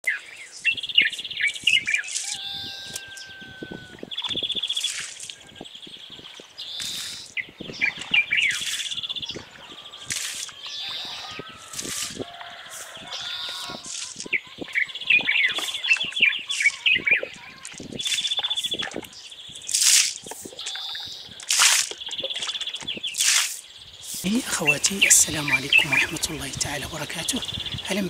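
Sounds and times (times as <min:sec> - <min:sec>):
small birds chirping and trilling: 0:00.0 - 0:28.0.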